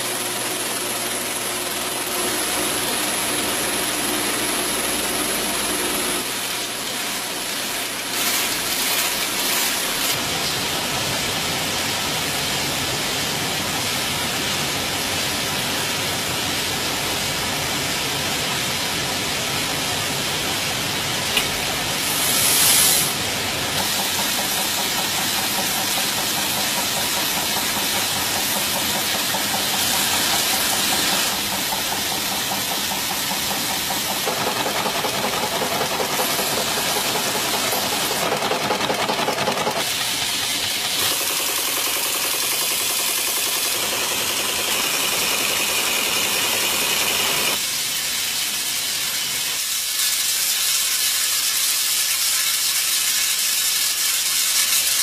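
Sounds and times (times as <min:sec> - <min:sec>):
coin machinery hiss and clatter: 0:00.0 - 0:55.0.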